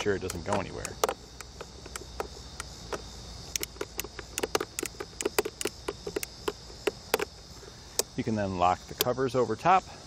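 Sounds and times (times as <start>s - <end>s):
ratchet strap lever clicking: 0.0s - 7.4s.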